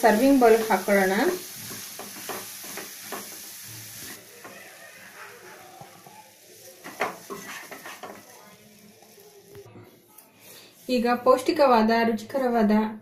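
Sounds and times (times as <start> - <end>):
faint sizzle: 0.0 - 11.5
spoon scraping a pan: 0.2 - 9.2.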